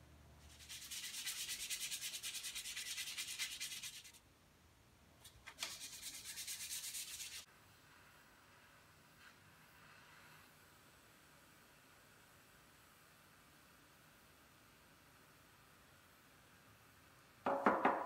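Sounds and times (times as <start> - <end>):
sandpaper rubbing on wood: 0.5 - 4.2, 5.6 - 7.5.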